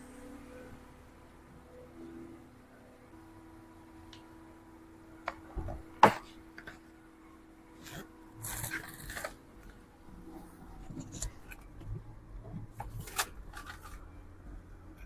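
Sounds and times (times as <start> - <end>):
rustling and handling noise: 7.7 - 14.2.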